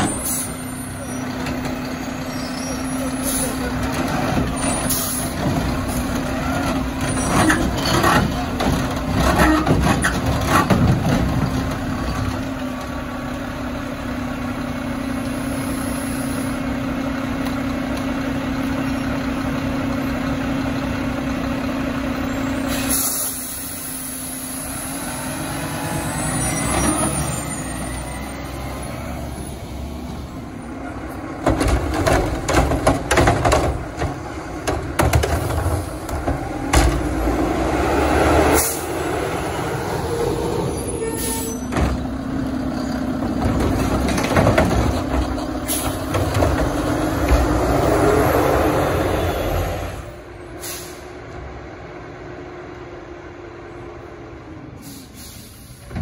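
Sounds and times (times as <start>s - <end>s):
garbage truck diesel engine: 0.0s - 56.0s
carts banging and knocking: 2.8s - 12.5s, 30.8s - 37.7s, 41.3s - 48.2s.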